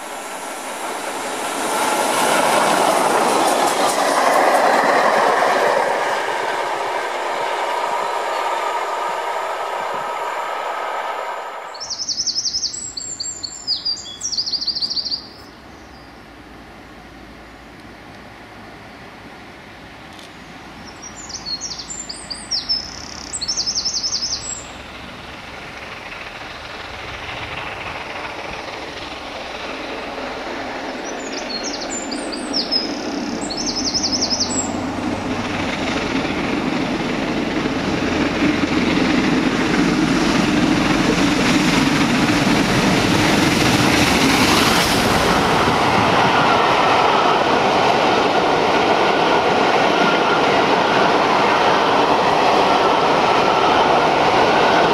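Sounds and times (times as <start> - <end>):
steam locomotive passing: 0.0 - 54.9
songbird trilling: 11.7 - 16.1, 20.8 - 24.8, 31.0 - 34.8.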